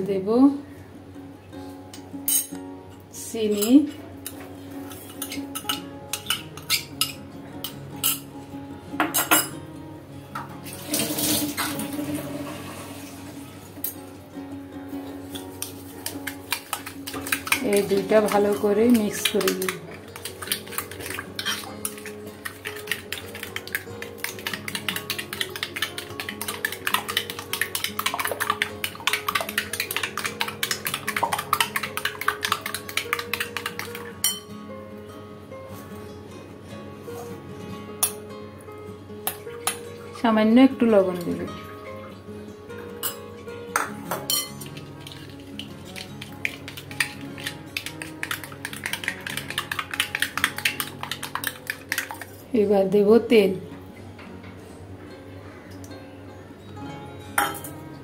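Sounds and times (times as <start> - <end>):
spoon clinking against ceramic bowl: 2.3 - 2.6, 3.5 - 8.3, 9.0 - 9.6, 15.3 - 34.5, 43.0 - 52.3, 57.4 - 57.8.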